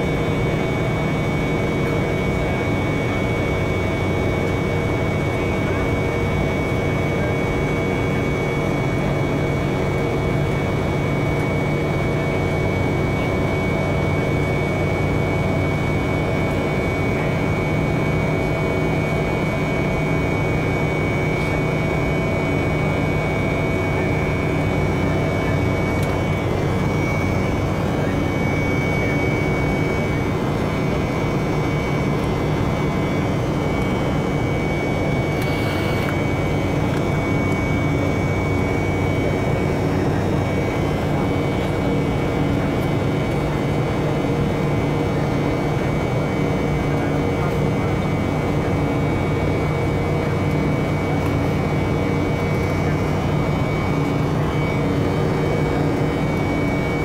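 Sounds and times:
jet engine drone: 0:00.0 - 0:57.0
thin high whine: 0:22.9 - 0:41.3.

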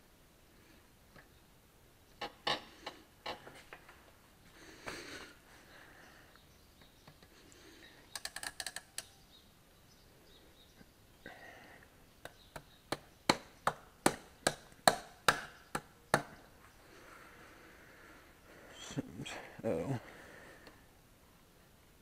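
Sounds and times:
ratchet clicks: 0:08.1 - 0:09.1.

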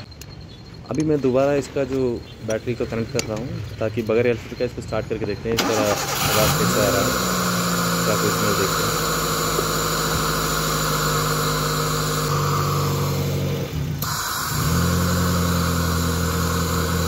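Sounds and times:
car engine idling: 0:05.6 - 0:17.0.

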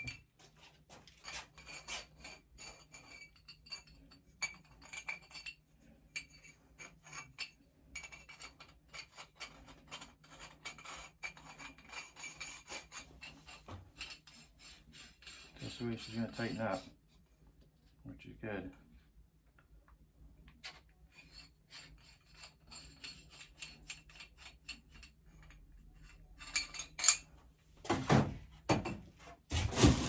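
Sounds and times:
metal threads rasping and scraping: 0:01.0 - 0:17.2, 0:20.6 - 0:27.4.

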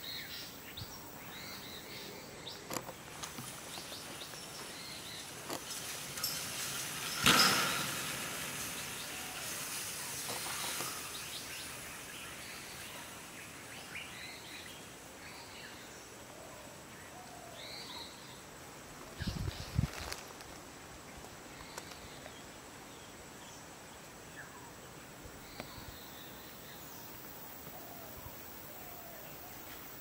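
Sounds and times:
birds chirping: 0:00.0 - 0:15.9
outdoor background noise: 0:00.0 - 0:30.0.

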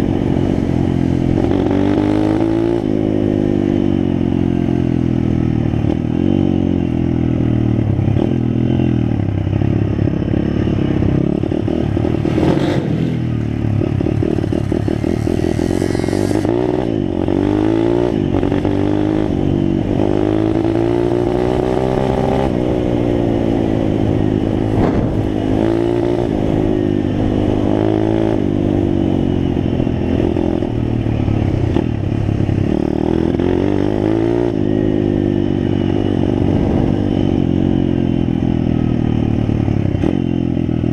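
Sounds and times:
dirt bike engine revving: 0:10.9 - 0:28.4.

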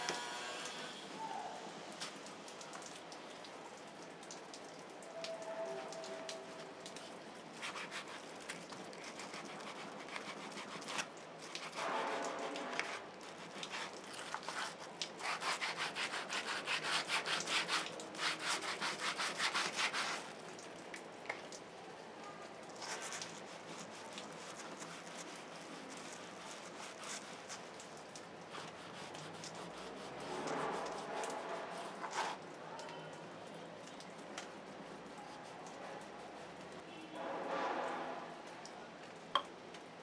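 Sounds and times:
wire brush scrubbing sole: 0:06.9 - 0:20.4, 0:22.8 - 0:32.4, 0:34.5 - 0:36.7.

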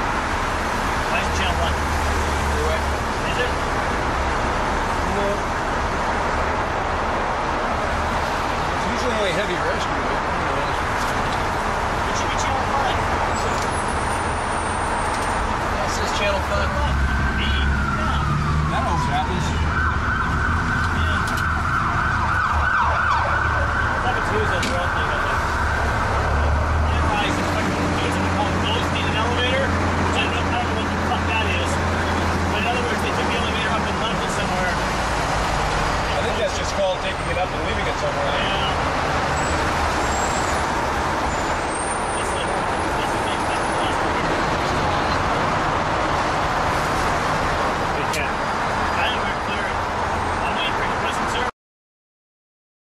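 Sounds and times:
fire engine running: 0:00.0 - 0:51.2
emergency siren: 0:11.2 - 0:51.5.

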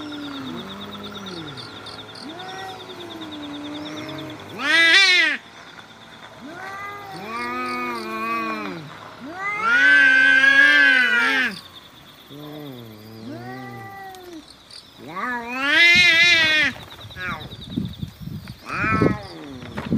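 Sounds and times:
cats yowling: 0:00.0 - 0:05.4, 0:06.4 - 0:17.5, 0:18.6 - 0:19.9.

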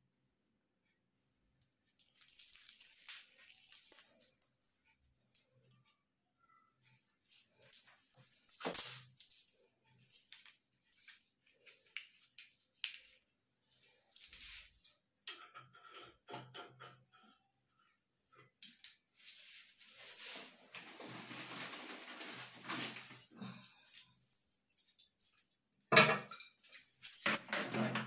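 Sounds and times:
small parts clicking and clinking: 0:01.9 - 0:05.8, 0:07.6 - 0:15.8, 0:18.6 - 0:19.1
rustling: 0:19.2 - 0:23.3.

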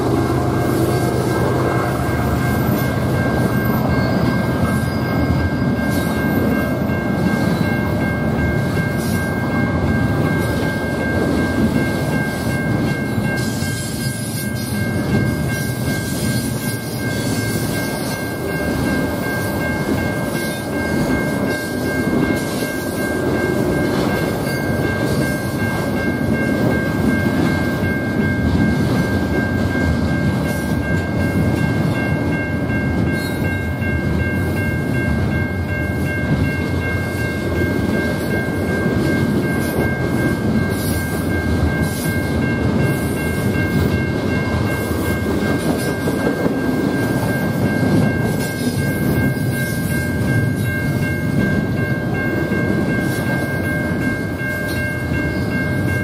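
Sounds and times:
freight train wheels rumbling: 0:00.0 - 0:56.0
high-pitched ringing: 0:00.0 - 0:56.0.

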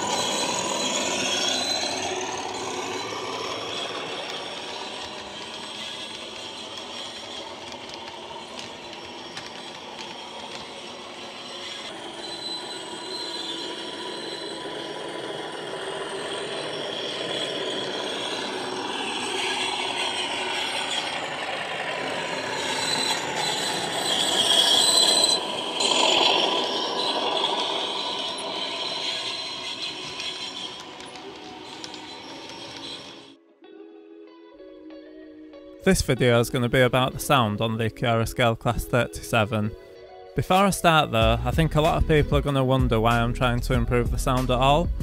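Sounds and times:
model diesel engine sound: 0:00.0 - 0:33.4
wheels clattering on track: 0:00.0 - 0:33.4.

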